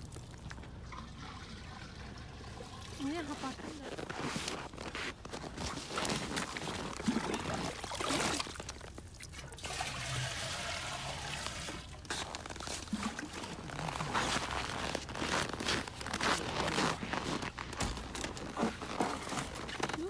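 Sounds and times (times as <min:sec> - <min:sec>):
water pouring into metal cans: 0:00.0 - 0:04.0, 0:06.4 - 0:14.4.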